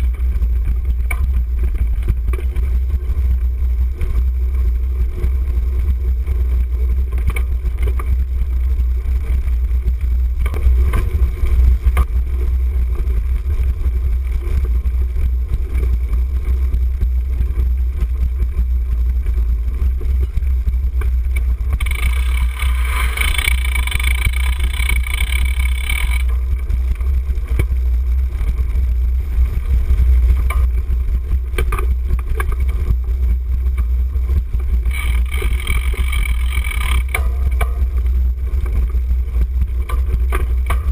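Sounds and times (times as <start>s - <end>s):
bike rattles and knocks: 0.0s - 40.9s
higher-pitched buzz: 21.7s - 26.4s, 34.8s - 37.8s.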